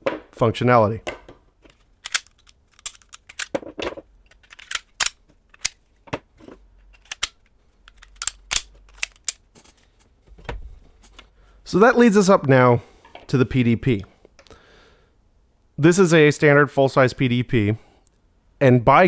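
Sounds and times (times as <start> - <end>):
pistol slide clicks and snaps: 2.0 - 3.5, 4.3 - 5.8, 7.0 - 9.4.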